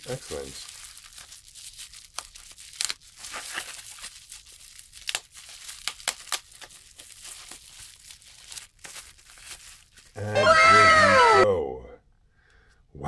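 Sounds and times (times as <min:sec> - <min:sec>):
bubble wrap crinkling: 0:00.0 - 0:10.2.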